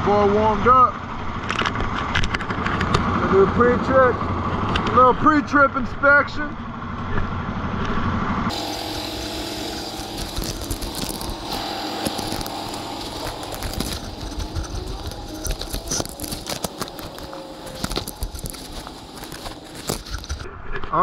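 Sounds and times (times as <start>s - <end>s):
diesel engine idling: 0.0s - 20.5s
engine clicks and knocks: 1.3s - 5.1s.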